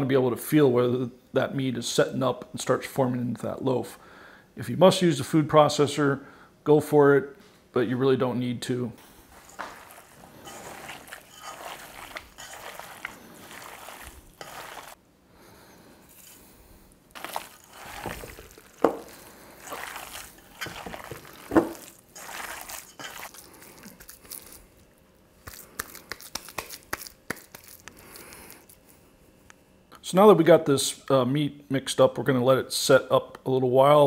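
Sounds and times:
hands squelching raw meat: 9.1s - 15.0s, 17.1s - 24.7s, 25.4s - 28.8s.

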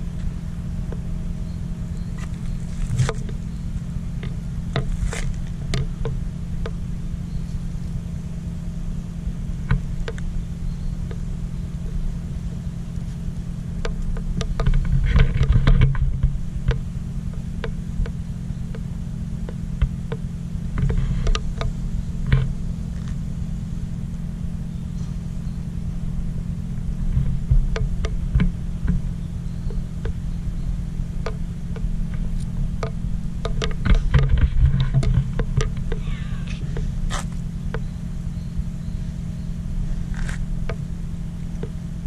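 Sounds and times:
low mechanical hum: 0.0s - 42.0s.

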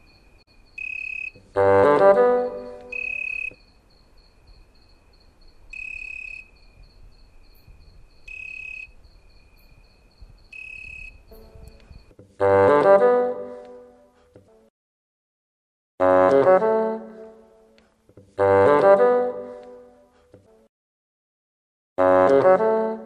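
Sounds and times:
crickets chirping: 0.0s - 12.2s
brass-like musical note: 1.5s - 3.4s, 12.4s - 14.1s, 16.0s - 17.6s, 18.4s - 20.0s, 22.0s - 23.0s.

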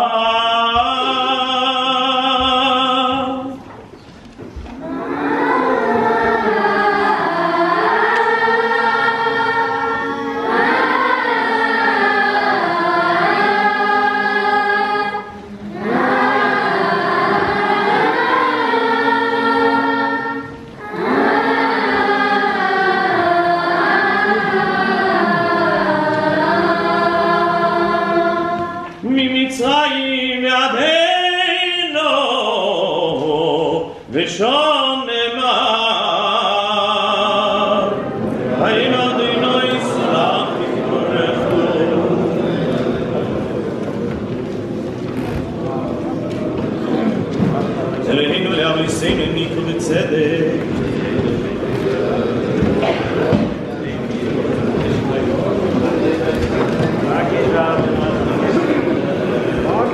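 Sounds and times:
boys' choir singing: 0.0s - 3.7s, 4.6s - 59.9s.

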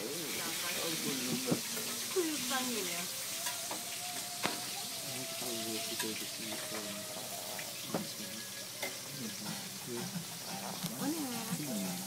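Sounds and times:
faint voices: 0.0s - 12.0s
steady hiss: 0.0s - 12.0s
cutlery clinking against plates: 3.3s - 12.0s.

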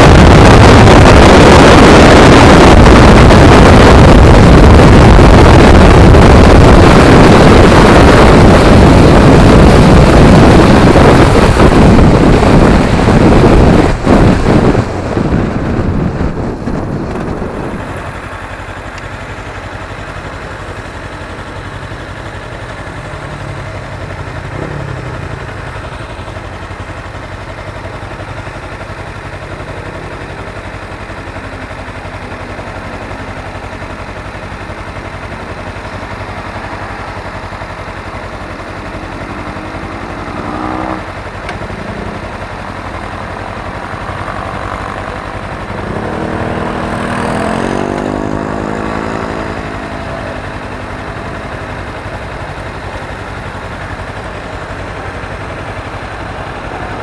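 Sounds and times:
wind rushing over microphone: 0.0s - 18.6s
motorcycle engine idling: 14.4s - 57.0s.

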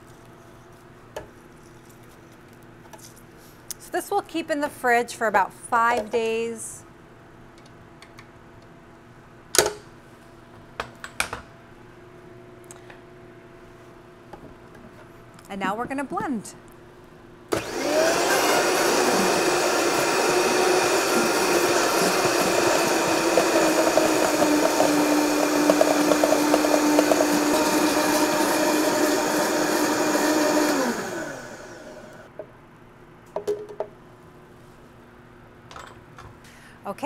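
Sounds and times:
blender running: 17.5s - 32.3s.

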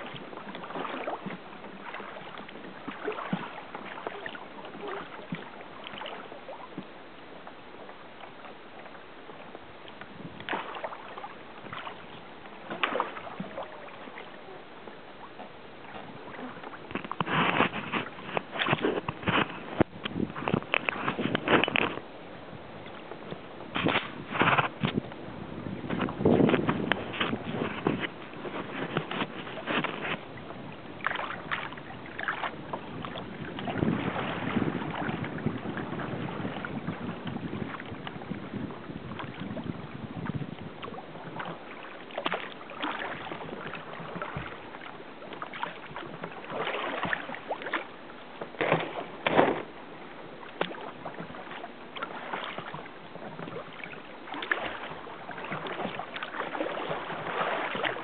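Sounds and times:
water lapping against kayak: 0.0s - 58.0s
sharp paddle splashes: 10.4s - 11.0s, 12.7s - 13.6s, 48.6s - 49.7s, 54.3s - 58.0s.

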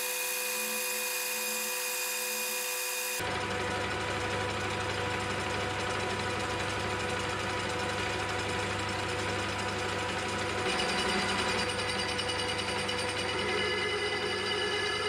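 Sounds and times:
cutting tool shaving metal: 0.0s - 3.2s, 10.6s - 15.0s
metal lathe humming: 0.0s - 3.2s, 8.0s - 15.0s
high ringing tones: 10.7s - 15.0s.

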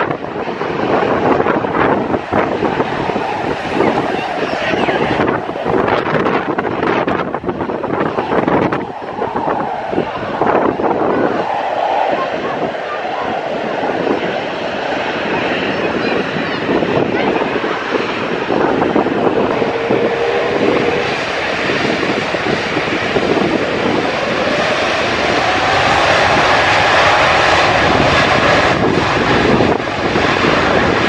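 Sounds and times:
jet engines running loud: 0.0s - 31.0s
faint rising whine: 18.7s - 22.7s.

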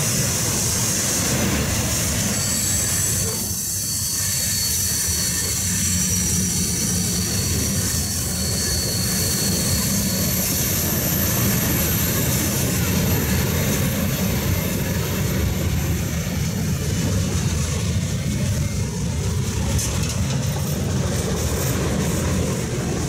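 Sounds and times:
train wheels rumbling on rails: 0.0s - 23.0s
high-pitched wheel squeals: 0.8s - 17.1s.

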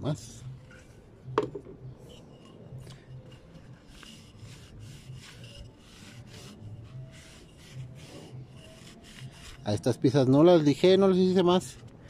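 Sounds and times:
cloth wiping wooden board: 3.1s - 9.8s.

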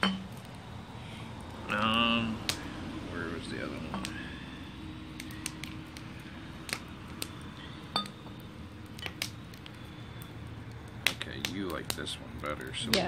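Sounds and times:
glass bottles clinking: 0.0s - 0.3s
steady low background noise: 0.0s - 13.0s.

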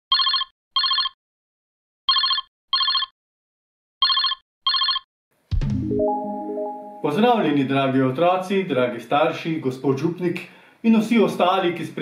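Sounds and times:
telephone ringing tone: 0.1s - 1.2s, 2.1s - 3.1s, 4.0s - 5.1s
held musical tones: 5.5s - 7.5s.

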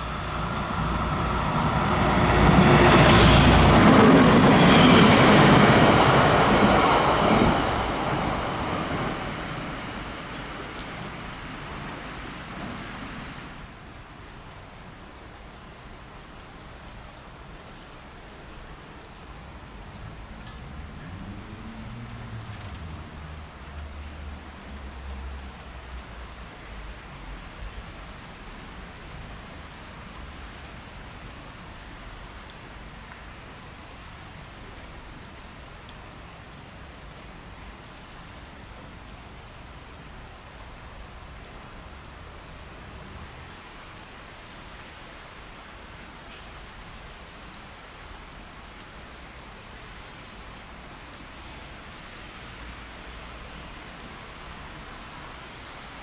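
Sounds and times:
rain hissing: 0.0s - 16.8s.

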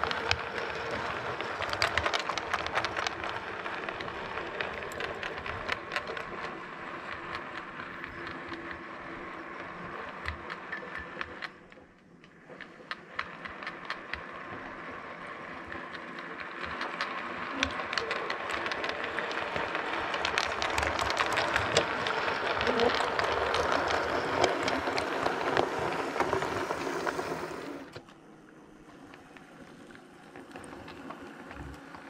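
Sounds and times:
train wheels clicking over rail joints: 0.0s - 28.0s
small motor whirring: 13.2s - 28.2s.

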